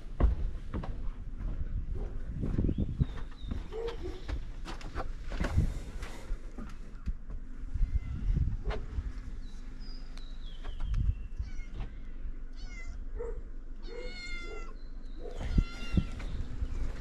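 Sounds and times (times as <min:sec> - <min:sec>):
cat meowing: 0:11.4 - 0:11.9, 0:12.5 - 0:13.0, 0:13.8 - 0:16.2.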